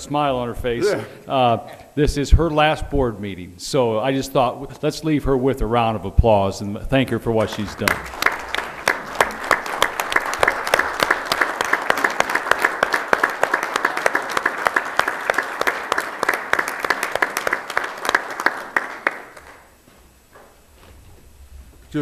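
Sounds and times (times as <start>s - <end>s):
audience applauding: 7.4s - 19.8s.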